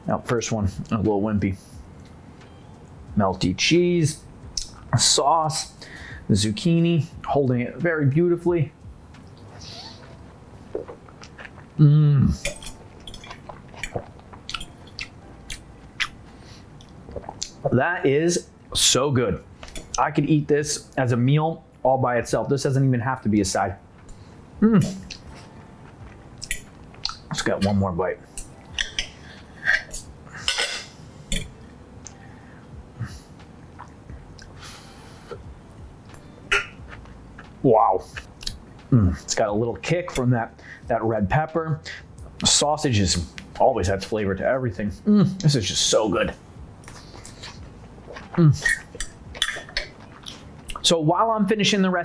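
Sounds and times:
man humming with mouth full: 11.8s - 12.4s, 24.6s - 25.0s
cutlery clinking on plate: 30.4s - 31.5s.

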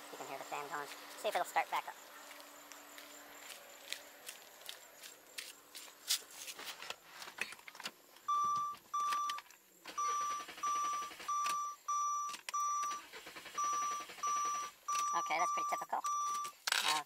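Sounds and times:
car warning chime beeping: 8.3s - 16.6s.

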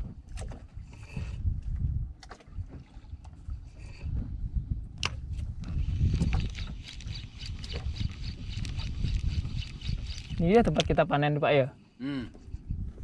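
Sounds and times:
wind buffeting microphone: 0.0s - 11.4s, 12.3s - 13.0s
water slapping boat hull: 1.6s - 4.2s
fishing reel clicks: 5.8s - 10.9s.

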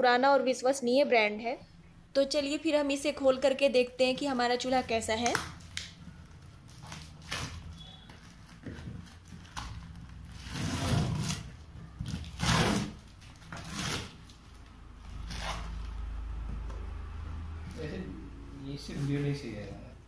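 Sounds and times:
paper wrapping tearing off cardboard: 6.5s - 16.0s.

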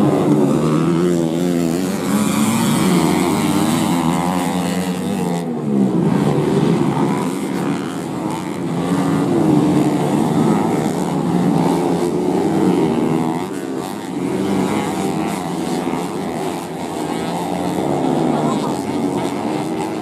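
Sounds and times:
motorcycle engines revving: 0.0s - 20.0s.

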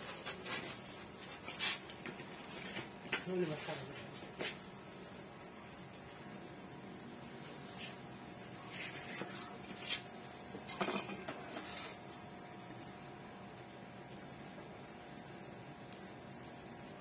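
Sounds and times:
low background hum: 0.0s - 17.0s
foam sheet scraping and rustling: 8.6s - 10.1s.

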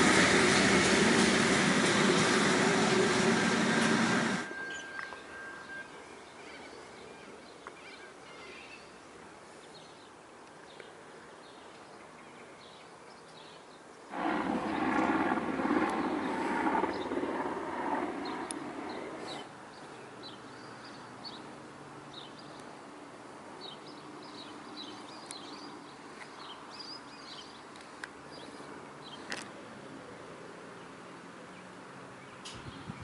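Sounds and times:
engine drone: 0.0s - 6.0s, 14.1s - 19.5s
small birds chirping: 23.6s - 29.3s.

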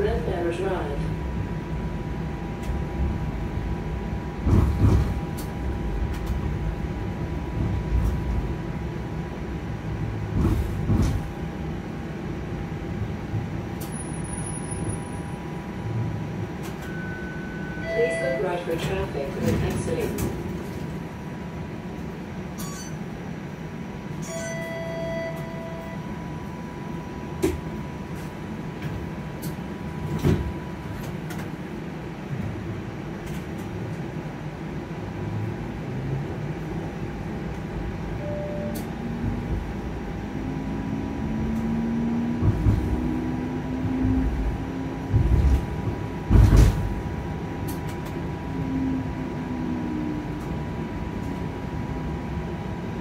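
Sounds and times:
streetcar wheels rumbling on track: 0.0s - 53.0s
clunks and knocks: 10.3s - 11.3s, 45.0s - 47.0s
faint constant whine: 11.3s - 41.8s
short electronic tone: 16.8s - 18.3s, 22.6s - 23.0s, 24.2s - 26.1s, 38.2s - 38.9s.

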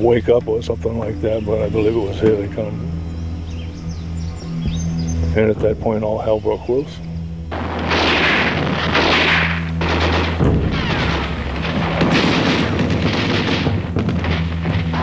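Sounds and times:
low drone: 0.0s - 15.0s
booming explosions: 7.5s - 15.0s
dense gunfire: 7.5s - 15.0s.

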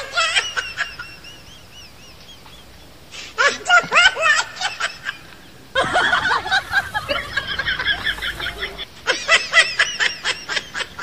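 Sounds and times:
high chirping animal calls: 0.8s - 3.4s, 5.2s - 8.9s.

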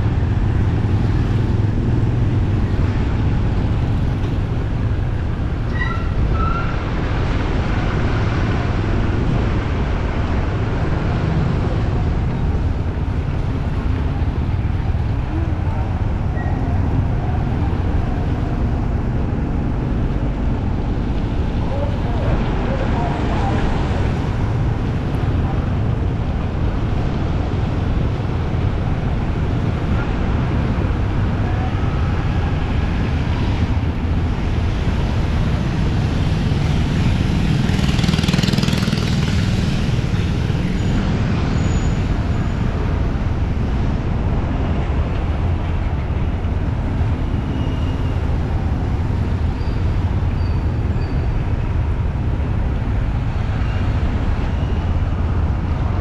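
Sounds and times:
street traffic rumble: 0.0s - 56.0s.

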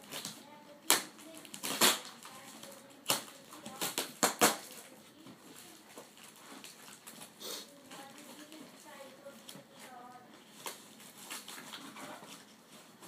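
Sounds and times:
cardboard ripping: 0.0s - 2.4s, 10.5s - 13.0s
cardboard rustling: 1.2s - 13.0s.

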